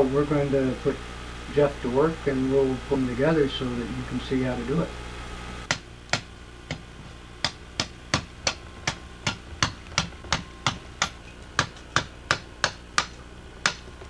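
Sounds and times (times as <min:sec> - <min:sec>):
cleaver chopping wood: 0:05.7 - 0:13.8.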